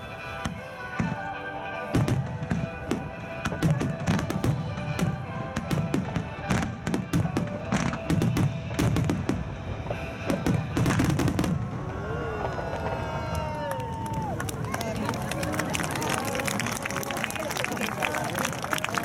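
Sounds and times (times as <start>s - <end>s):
music: 0.0s - 19.0s
fireworks bursting: 0.1s - 14.1s.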